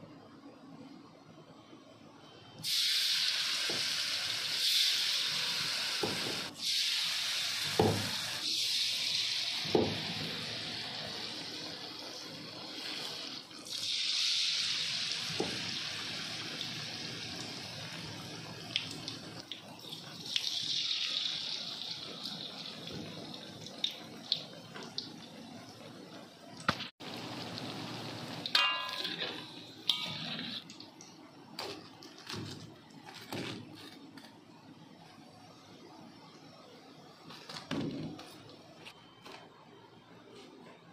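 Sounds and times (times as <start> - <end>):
food sizzling in hot oil: 2.6 - 19.2, 27.0 - 30.8
kitchen utensils clattering: 28.6 - 30.7.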